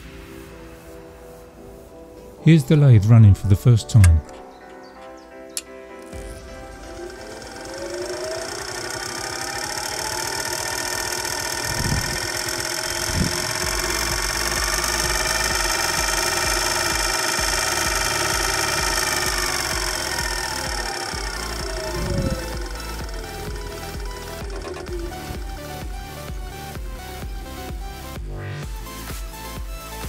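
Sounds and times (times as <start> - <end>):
lathe motor whine: 6.0 - 28.2.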